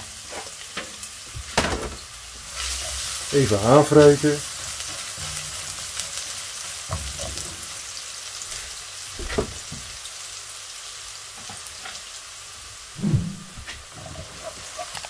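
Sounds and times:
garlic sizzling in hot oil: 0:00.0 - 0:12.9, 0:13.7 - 0:15.0
spatula scraping a wok: 0:13.7 - 0:15.0.

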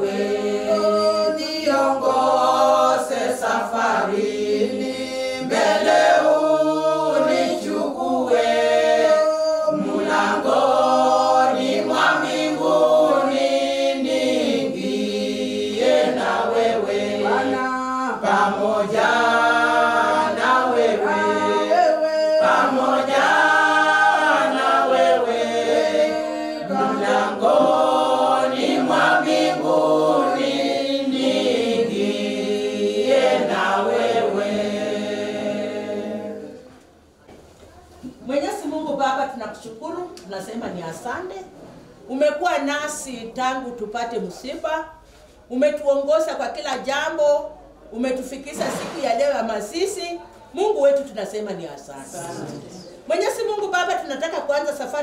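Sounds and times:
group singing without instruments: 0:00.0 - 0:37.1, 0:52.0 - 0:53.1.

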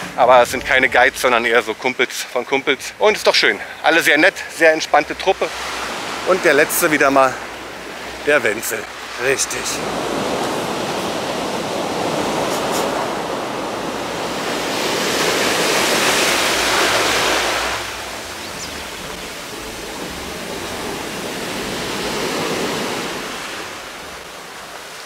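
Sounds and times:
surf breaking on rocks: 0:08.1 - 0:25.0.

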